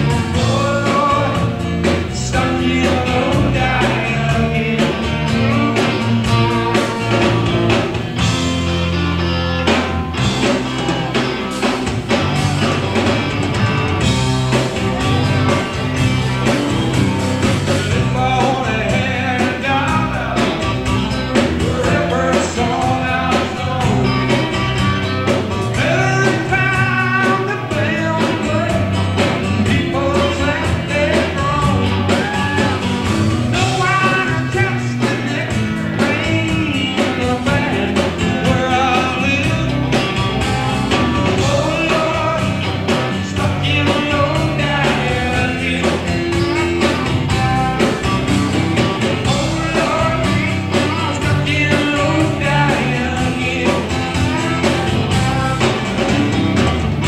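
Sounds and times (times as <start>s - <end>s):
rock band playing live: 0.0s - 57.0s.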